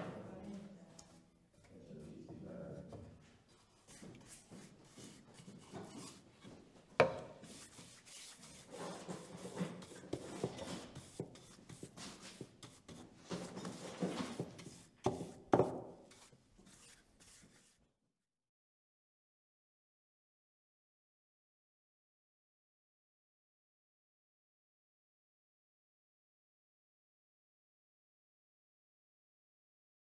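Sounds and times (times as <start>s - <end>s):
paintbrush scrubbing on wood: 3.7s - 17.8s.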